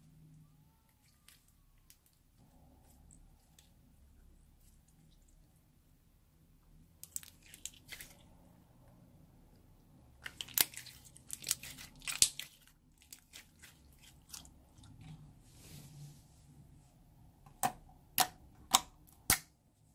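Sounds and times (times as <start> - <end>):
slime crackling and popping: 10.2 - 14.2.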